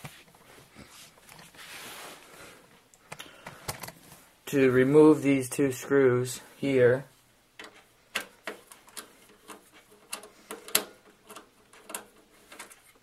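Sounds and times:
screwdriver clicking on screws: 0:07.6 - 0:12.8.

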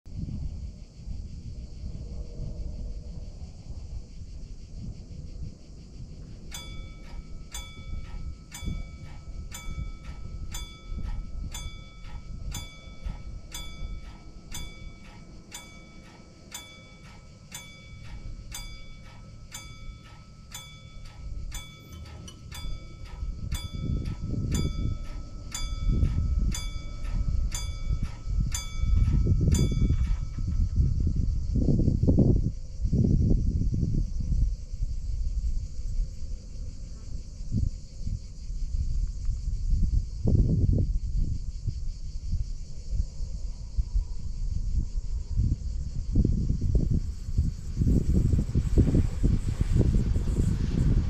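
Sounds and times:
wind noise on microphone: 0:00.0 - 0:51.0
level crossing bell ringing: 0:06.6 - 0:30.4.

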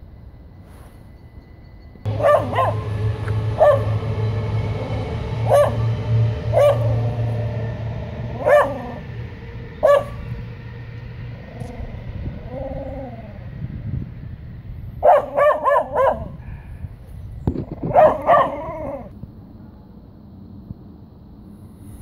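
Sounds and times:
passing train rumble: 0:00.0 - 0:22.0
dog barking: 0:02.2 - 0:02.8, 0:15.0 - 0:16.4, 0:17.9 - 0:18.6.

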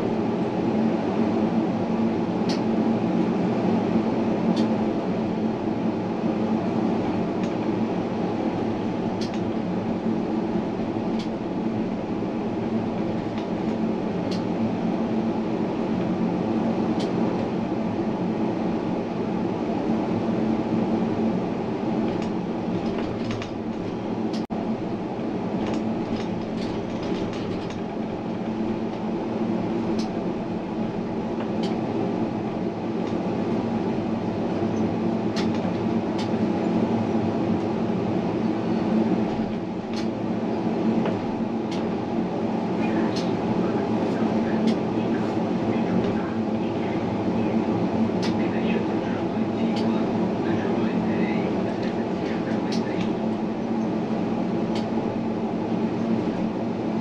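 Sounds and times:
tram wheels rumbling on track: 0:00.0 - 0:57.0.

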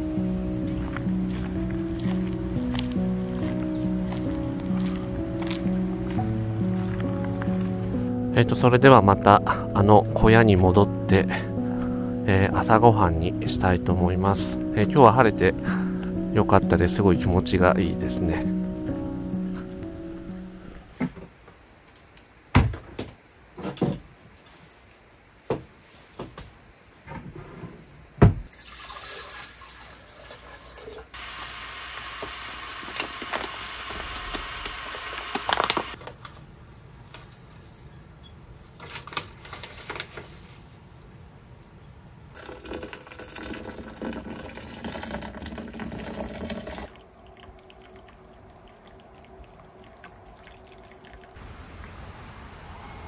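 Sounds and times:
tap water running into sink: 0:42.4 - 0:47.0.

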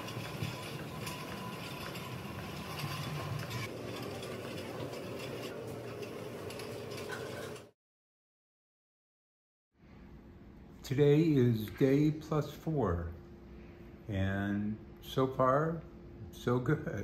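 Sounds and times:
wheeled pole rattling and clicking: 0:00.0 - 0:07.7.

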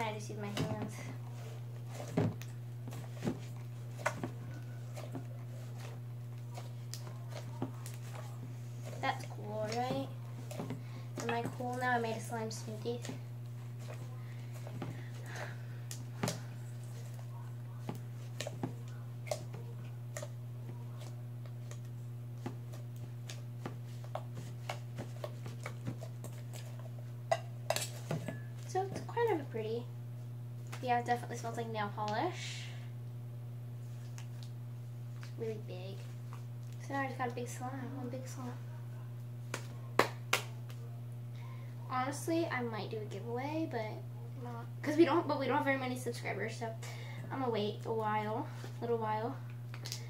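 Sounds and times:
slime squelching: 0:00.0 - 0:29.5
steady low hum: 0:00.0 - 0:50.0.

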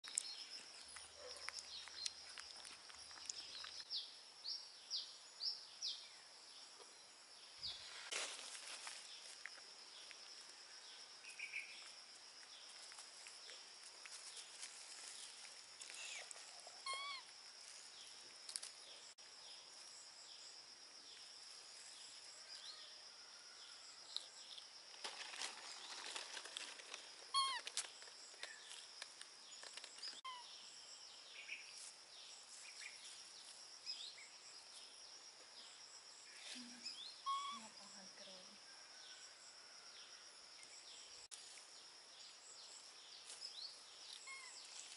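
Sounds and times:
faint insect drone: 0:00.1 - 0:44.9
grass rustling: 0:07.7 - 0:10.6, 0:11.8 - 0:18.8, 0:43.2 - 0:44.9
baby monkeys squeaking: 0:16.8 - 0:17.3, 0:27.3 - 0:27.6, 0:37.2 - 0:37.8, 0:44.2 - 0:44.6.

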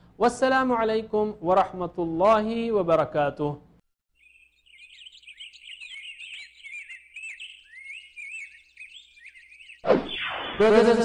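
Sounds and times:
birds chirping and twittering: 0:04.1 - 0:10.6.

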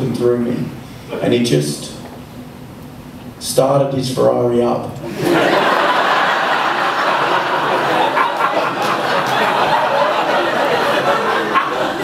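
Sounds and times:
audience laughing: 0:05.1 - 0:12.0.

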